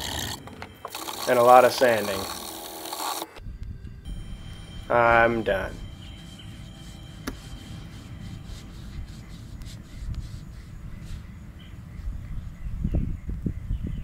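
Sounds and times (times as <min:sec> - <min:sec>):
paintbrush strokes: 0:05.3 - 0:12.6.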